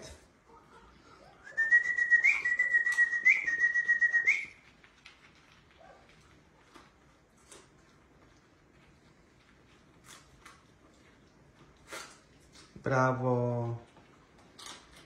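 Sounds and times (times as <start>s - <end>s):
person whistling high note: 1.4s - 4.5s.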